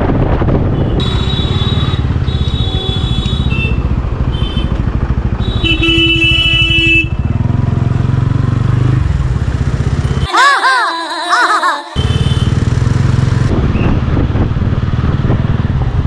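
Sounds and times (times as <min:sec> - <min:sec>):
vehicle horns honking: 0:00.9 - 0:04.8, 0:05.4 - 0:07.4, 0:11.9 - 0:12.8
motorcycle engine chugging: 0:01.4 - 0:10.4, 0:12.0 - 0:14.0.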